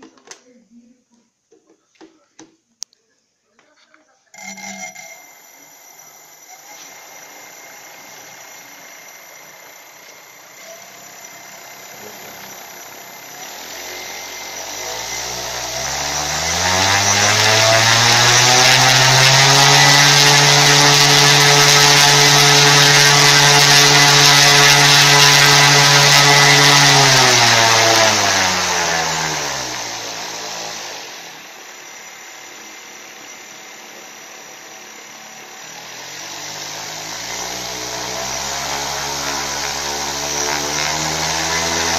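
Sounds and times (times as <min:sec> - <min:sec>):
electric motor propeller whine: 0:04.4 - 0:41.9.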